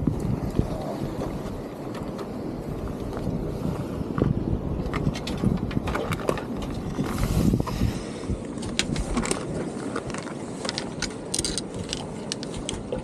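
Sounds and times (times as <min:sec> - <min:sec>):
fishing reel clicking: 0:10.7 - 0:12.5.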